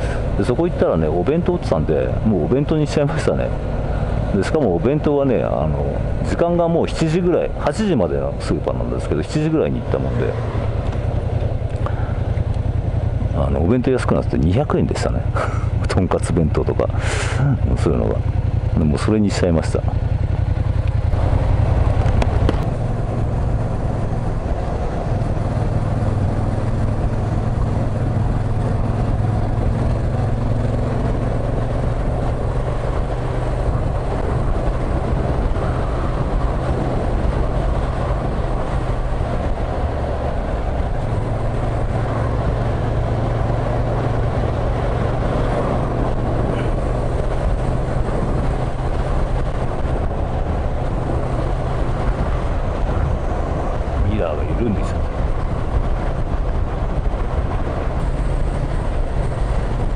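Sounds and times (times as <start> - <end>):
wind and road noise: 0.0 - 59.9
motorcycle engine revving: 9.8 - 13.5, 16.9 - 59.9.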